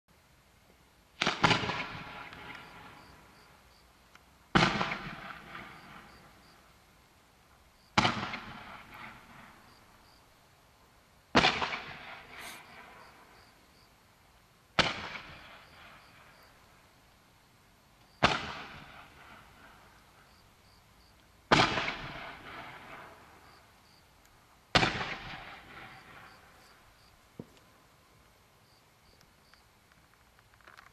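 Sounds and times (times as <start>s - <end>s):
firework mine bang: 4.5s - 6.2s, 11.3s - 13.1s, 21.5s - 23.4s, 24.7s - 26.5s
firework hiss: 11.4s - 13.1s.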